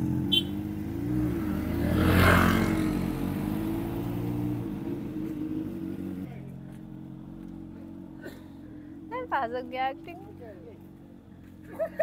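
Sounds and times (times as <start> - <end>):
motorcycle engine idling: 0.0 - 1.0.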